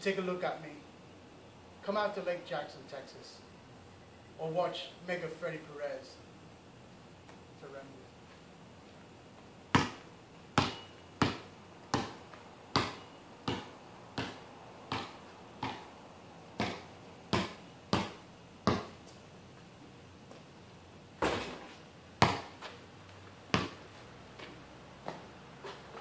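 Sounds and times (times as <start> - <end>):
basketball bouncing on concrete: 9.7 - 15.9, 16.6 - 19.1, 21.2 - 21.6, 22.2 - 22.6, 23.5 - 25.3.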